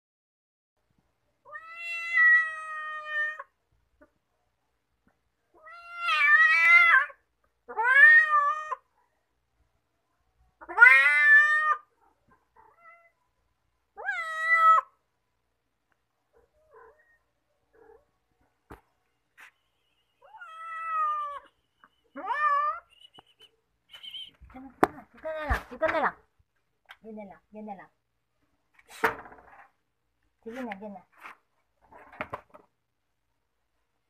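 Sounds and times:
cat meowing: 1.4 - 3.5, 10.6 - 11.9, 12.6 - 13.2, 14.0 - 15.0, 20.2 - 21.5, 22.2 - 22.9.

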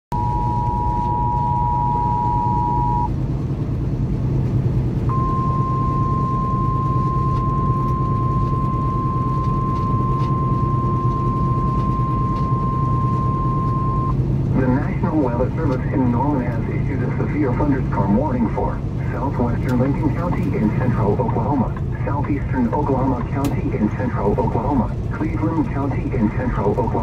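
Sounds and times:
two-tone alert signal: 0.1 - 3.1, 5.1 - 14.2
truck engine and road rumble: 0.1 - 27.0
steady high alert tone: 5.1 - 14.1.

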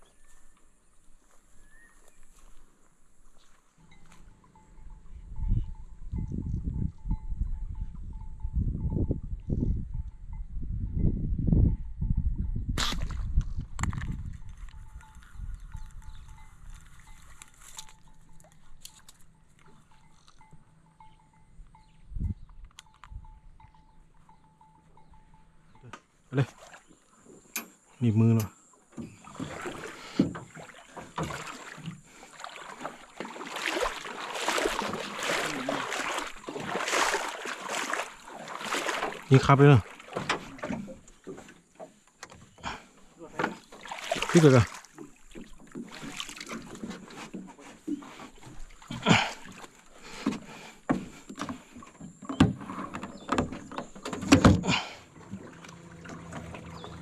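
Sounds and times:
water splashing and sloshing: 12.8 - 20.7, 26.3 - 57.0
knocks and clanks on metal boat: 27.2 - 57.0.

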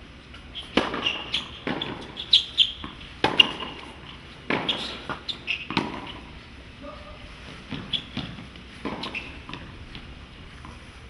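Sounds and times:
shoes squeaking on court: 0.3 - 6.4, 7.2 - 10.8
tennis ball racket hits: 0.6 - 6.3, 7.6 - 10.8.

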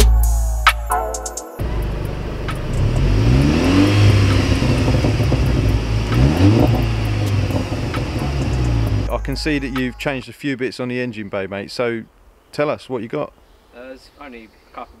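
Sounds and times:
car engine revving: 1.6 - 9.2.

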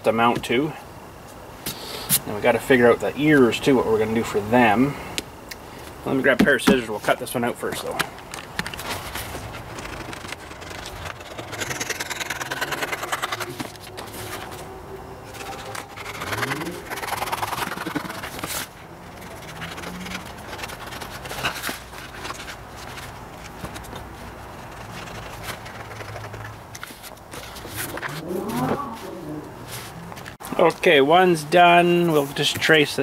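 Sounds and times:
paper rustling and scraping: 8.7 - 30.4
scissors cutting paper: 9.2 - 14.5, 15.3 - 23.0, 24.6 - 28.2.

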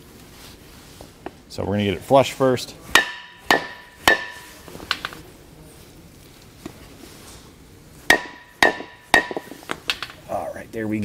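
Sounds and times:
hammer striking wood block: 2.9 - 4.6, 8.1 - 10.1.

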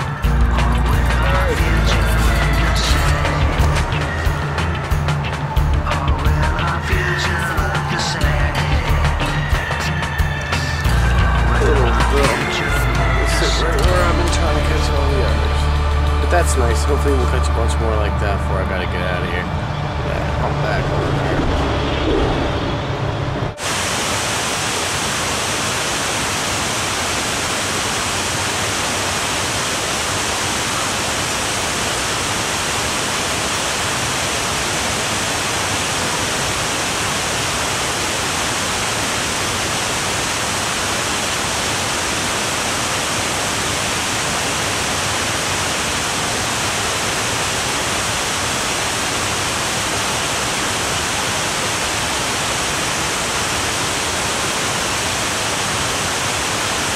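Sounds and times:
river water rushing: 23.6 - 56.9.

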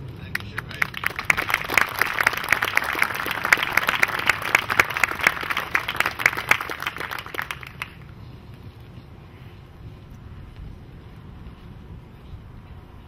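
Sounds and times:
audience applauding: 0.3 - 8.0.

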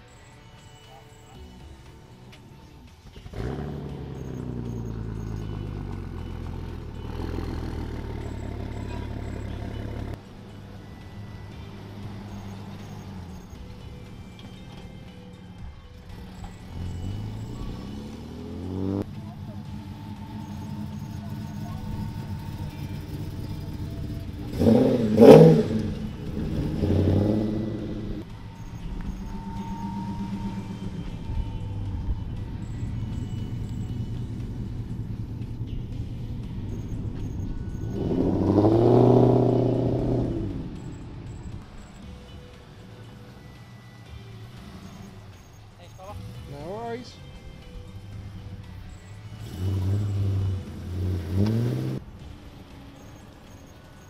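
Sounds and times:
car engine starting and idling: 0.0 - 54.0.

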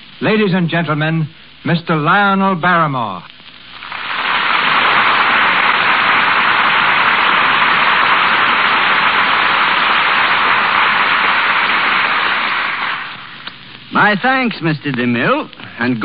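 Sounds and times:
audience applauding: 3.8 - 13.3.

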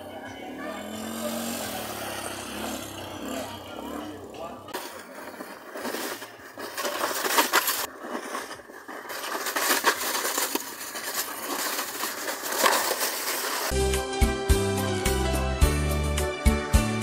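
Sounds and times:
plastic sled scraping down concrete: 4.7 - 13.8.

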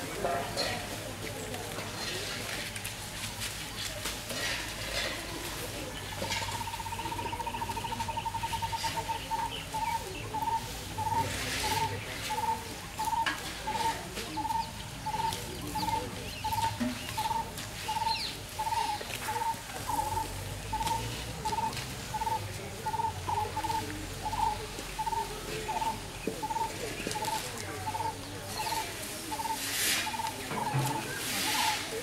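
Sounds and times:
bird trill: 6.4 - 31.8.

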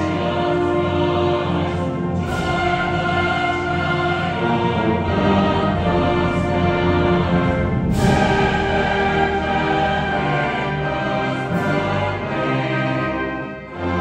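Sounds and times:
brass band playing chords: 0.0 - 14.0
mixed choir singing: 0.0 - 14.0.

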